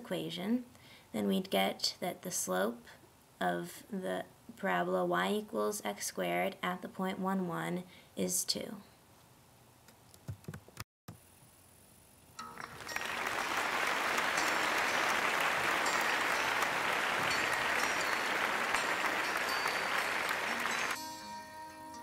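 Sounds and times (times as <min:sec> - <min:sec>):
applause: 0:12.6 - 0:21.0
plucked-string music: 0:13.8 - 0:22.0.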